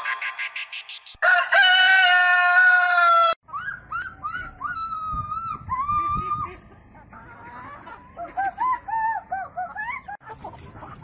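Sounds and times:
rooster crowing: 1.2 - 3.4
chickens calling: 1.2 - 11.0.

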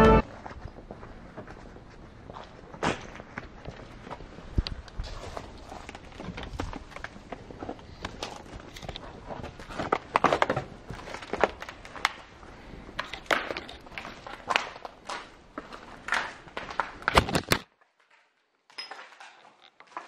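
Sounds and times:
footsteps and scuffs: 0.0 - 12.4, 13.2 - 20.0.

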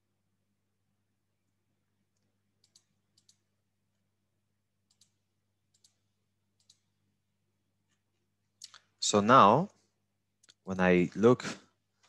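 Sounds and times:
faint low hum: 0.0 - 12.0
computer mouse clicks: 2.2 - 3.5, 4.8 - 6.9.

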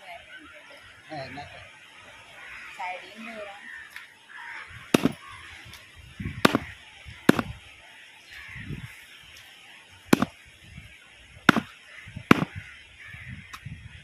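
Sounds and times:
knife chopping on wooden board: 5.0 - 5.2, 6.4 - 6.7, 7.3 - 7.5, 10.1 - 10.3, 11.5 - 11.7, 12.3 - 12.5.

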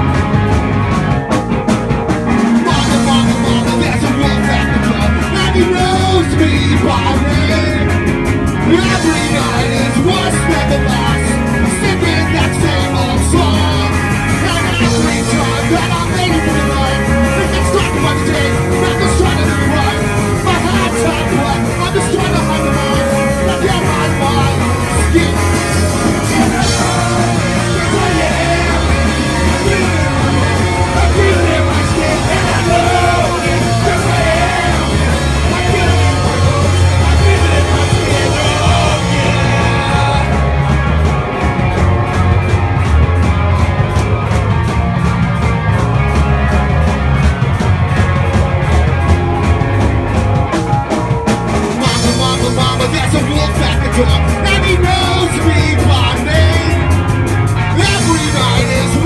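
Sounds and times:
punk band playing live: 0.0 - 59.0
person singing: 2.5 - 40.8, 51.8 - 57.0, 57.6 - 59.0.

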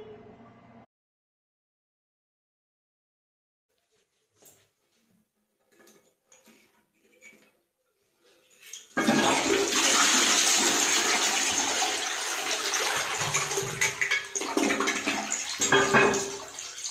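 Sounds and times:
toilet flushing: 8.8 - 16.9.

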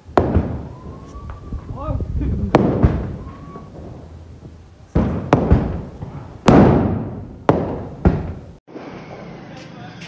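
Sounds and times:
firecrackers bursting: 0.0 - 8.6.

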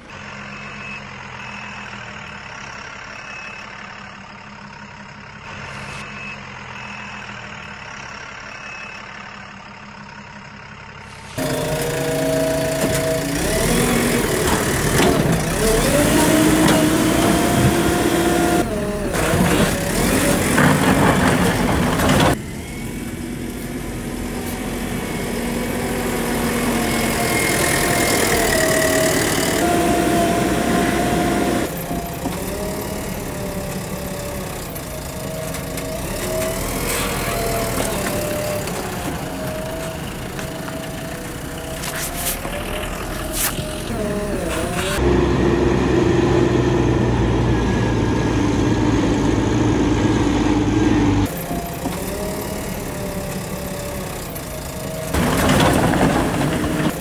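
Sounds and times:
heavy vehicle engine running: 0.0 - 57.0
reversing beep: 0.1 - 4.0, 5.5 - 9.4
engine revving: 11.2 - 57.0.

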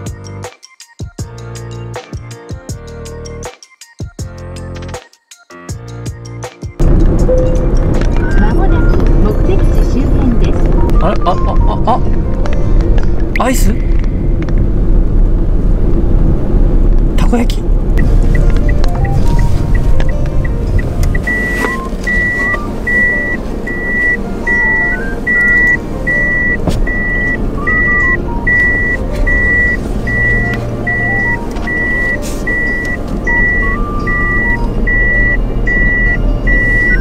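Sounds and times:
low engine hum: 6.8 - 37.0
reverse warning beeps: 7.3 - 9.9, 18.0 - 37.0.

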